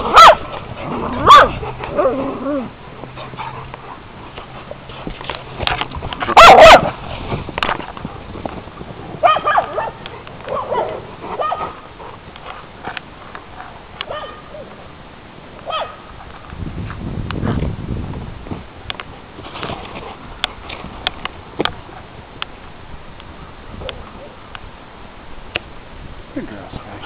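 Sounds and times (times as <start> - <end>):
dogs barking: 0.0 - 2.2, 6.2 - 7.0, 9.2 - 11.9, 14.0 - 14.6, 15.6 - 16.1.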